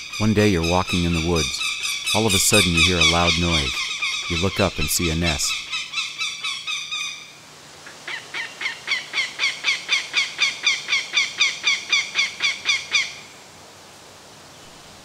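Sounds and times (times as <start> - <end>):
hawk alarm calls: 0.0 - 7.3.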